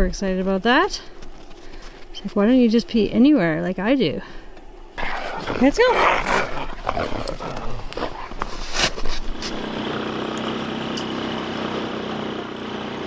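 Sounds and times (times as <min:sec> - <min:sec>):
dogs scuffling in snow: 0:05.0 - 0:09.7
dogs yipping excitedly: 0:05.0 - 0:09.7
snowplow engine drone: 0:07.2 - 0:13.0.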